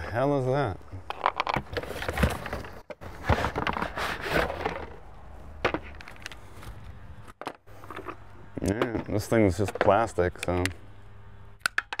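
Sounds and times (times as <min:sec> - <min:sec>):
scrapes and knocks of cardboard box: 0:01.6 - 0:05.0.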